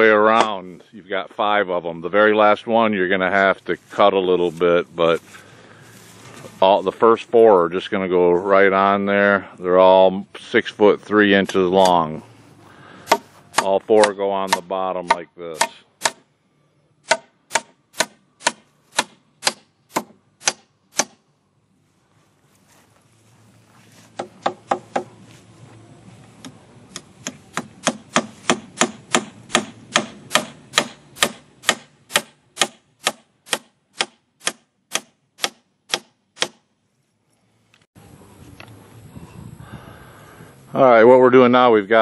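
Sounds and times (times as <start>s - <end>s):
hammer driving nails into wood: 13.1s - 16.2s, 17.0s - 21.2s, 26.9s - 36.6s.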